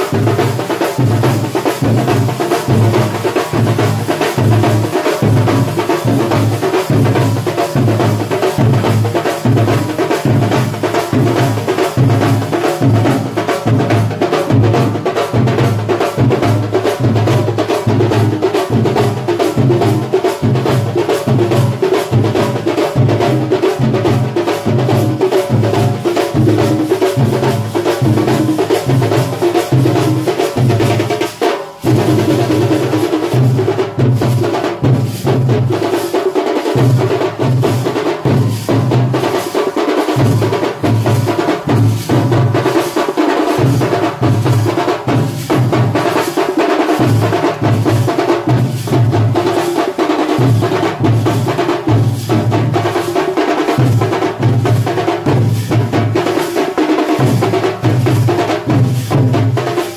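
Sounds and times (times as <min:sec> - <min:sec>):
drums beating fast rhythm: 0:00.0 - 0:59.9.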